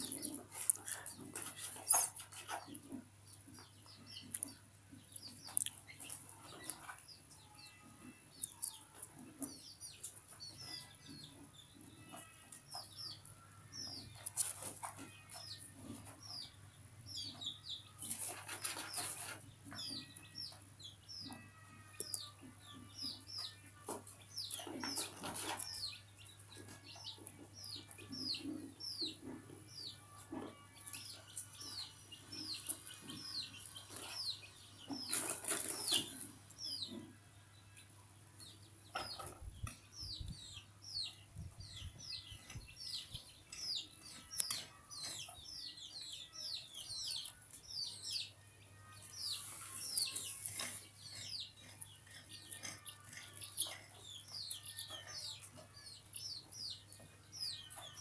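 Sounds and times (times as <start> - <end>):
small bird chirping: 0.0 - 23.6, 49.2 - 58.0.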